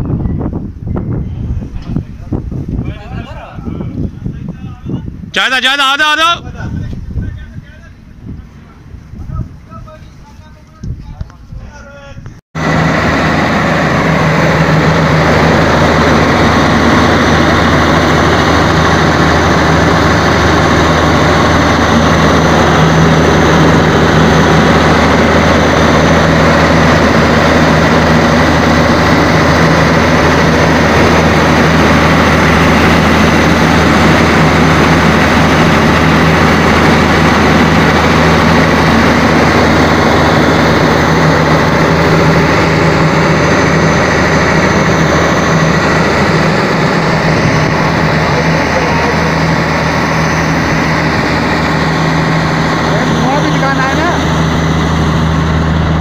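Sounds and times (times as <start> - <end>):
diesel engine running loudly: 12.6 - 56.0.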